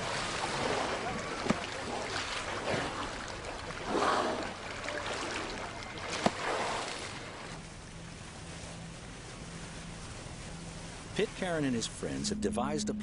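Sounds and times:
water washing: 0.0 - 12.4
motor boat engine humming: 0.0 - 13.0
whales blowing breaths: 1.9 - 7.6.

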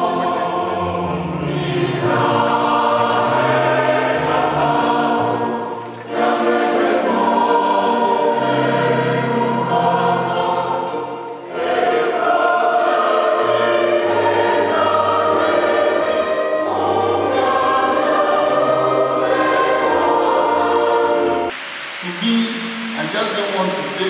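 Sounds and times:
choir singing in parts: 0.0 - 21.5.

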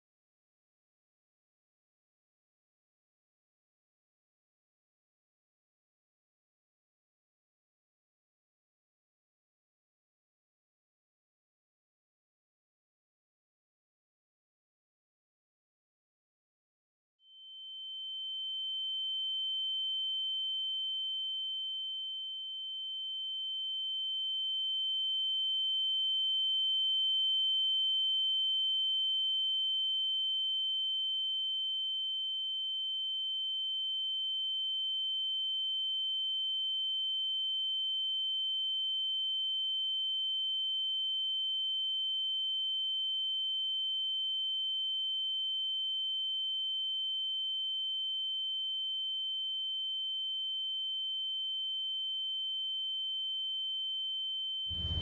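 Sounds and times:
high-pitched electronic tone: 54.7 - 55.0.

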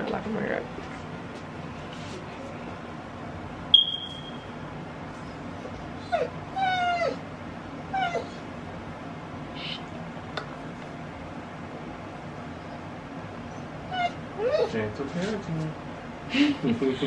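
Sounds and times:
sharp high squeak: 3.8 - 4.5.

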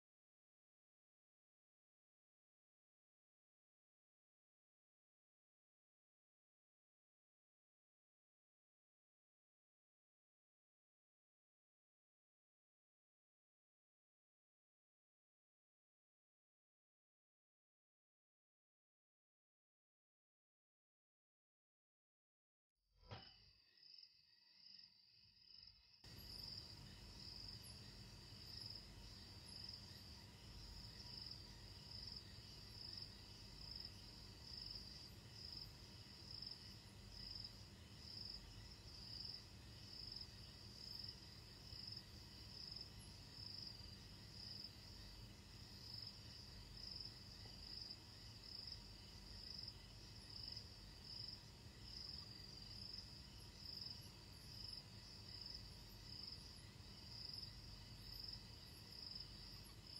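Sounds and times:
crickets chirping: 23.2 - 59.9.

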